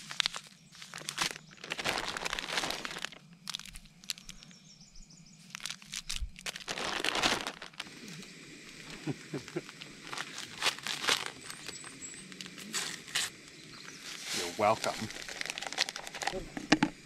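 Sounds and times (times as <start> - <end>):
plastic bag crinkling: 0.0 - 4.5, 5.5 - 7.9, 9.6 - 13.3, 14.5 - 17.0.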